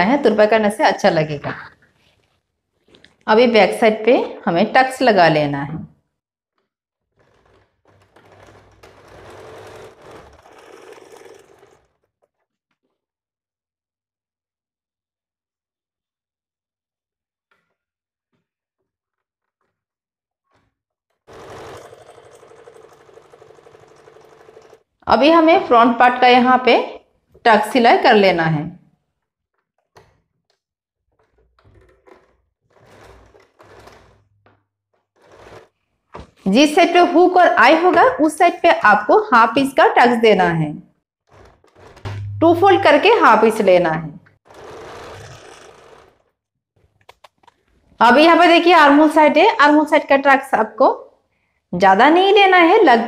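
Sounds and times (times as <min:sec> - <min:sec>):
sewing machine stitching: 0:06.6 - 0:12.5, 0:20.5 - 0:28.3, 0:29.8 - 0:40.4, 0:41.2 - 0:49.2.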